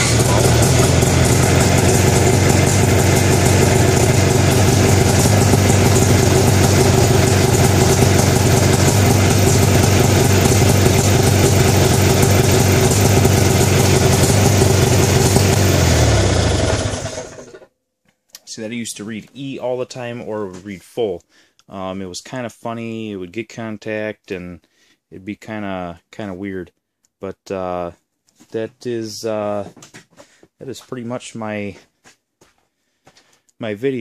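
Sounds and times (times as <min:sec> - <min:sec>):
snowmobile engine idling: 0:00.0 - 0:17.6.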